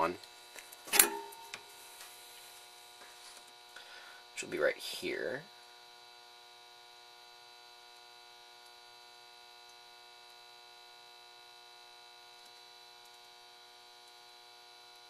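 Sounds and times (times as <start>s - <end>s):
faint electrical hum: 0.0s - 15.0s
thin high whine: 0.9s - 2.6s.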